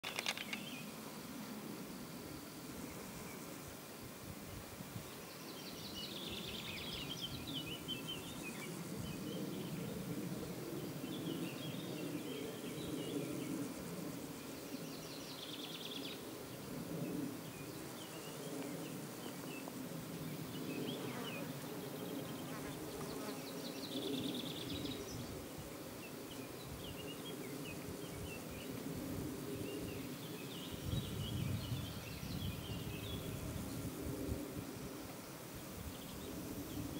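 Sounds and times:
insect wings buzzing: 0.0 - 12.2.

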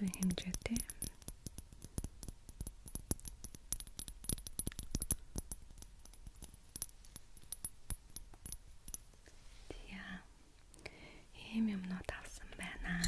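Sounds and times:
fingernails tapping on glass bottle: 0.0 - 9.2.

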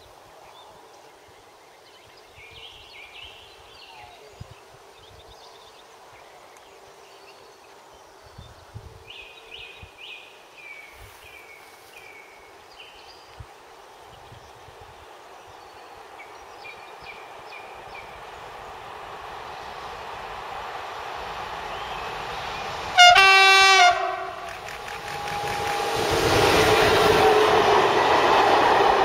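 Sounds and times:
songbird singing: 0.0 - 28.7
wind rumble on microphone: 2.0 - 5.6, 8.2 - 10.2, 13.0 - 15.8, 24.4 - 29.0.

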